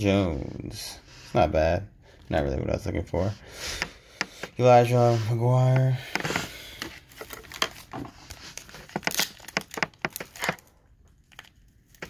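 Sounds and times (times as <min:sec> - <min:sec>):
foil wrapper crinkling: 0:06.2 - 0:12.0.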